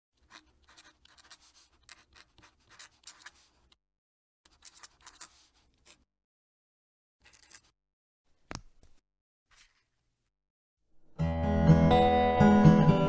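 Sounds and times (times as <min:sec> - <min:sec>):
pen nib scratching on paper: 0:00.2 - 0:03.8, 0:04.5 - 0:06.1.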